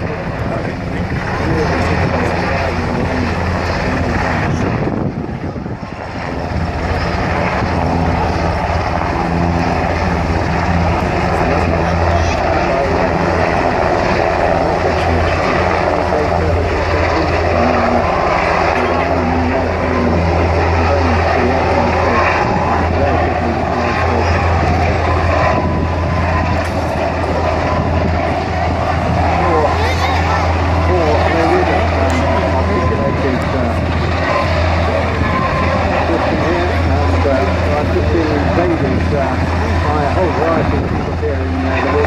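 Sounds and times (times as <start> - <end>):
helicopter hovering: 0.0 - 42.0
wind: 0.0 - 42.0
wind rushing: 4.0 - 12.0, 22.4 - 29.8.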